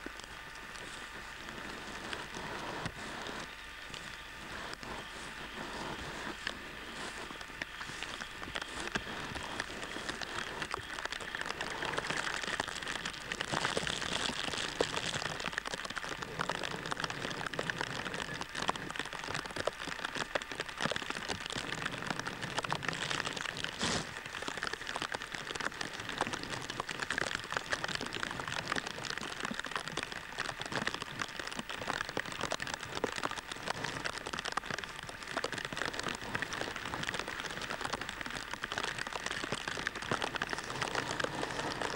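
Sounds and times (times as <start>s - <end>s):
rain falling: 0.0s - 41.9s.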